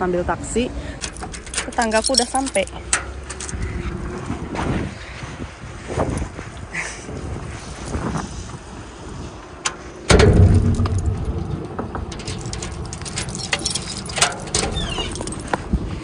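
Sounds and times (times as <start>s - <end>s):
clicks and knocks: 9.7s - 15.6s.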